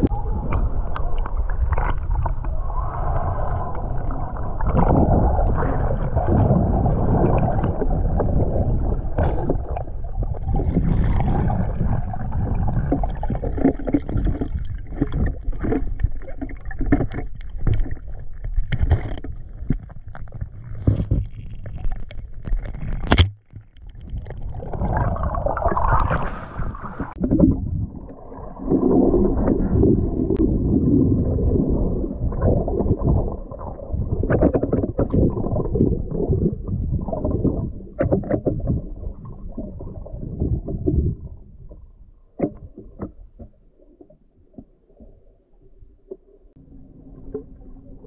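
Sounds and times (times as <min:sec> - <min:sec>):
underwater rushing and rumbling: 0:00.0 - 0:48.0
knocks and scrapes: 0:12.9 - 0:24.3.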